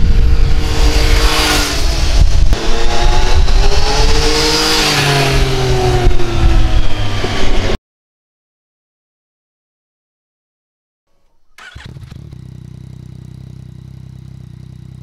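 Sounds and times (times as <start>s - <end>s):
motorcycle engine revving: 0.0s - 7.8s, 11.2s - 15.0s.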